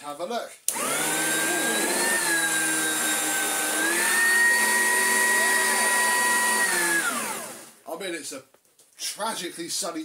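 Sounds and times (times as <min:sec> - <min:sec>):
vacuum cleaner motor whine: 0:00.7 - 0:07.8.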